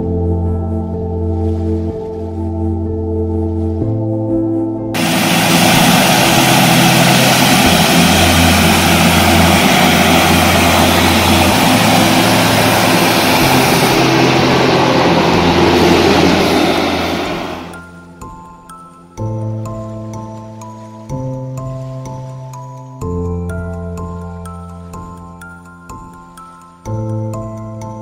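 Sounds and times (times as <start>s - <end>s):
turboprop engines running: 5.0s - 18.0s.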